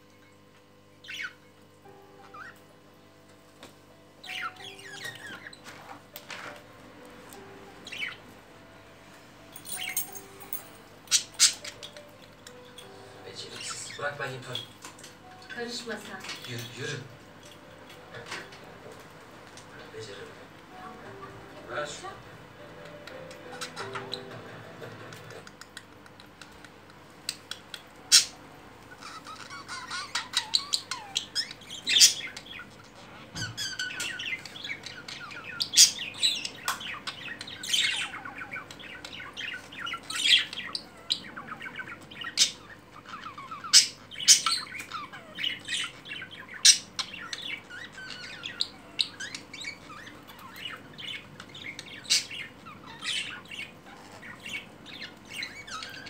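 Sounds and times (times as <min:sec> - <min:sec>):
budgerigars chattering: 0:01.0 - 0:01.4, 0:04.2 - 0:05.6, 0:11.1 - 0:12.6, 0:22.8 - 0:26.1, 0:28.1 - 0:56.0.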